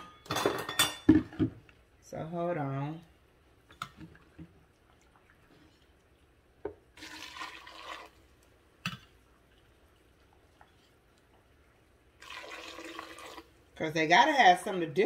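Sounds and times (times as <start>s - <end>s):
liquid pouring into blender jar: 6.7s - 8.3s, 12.2s - 13.6s.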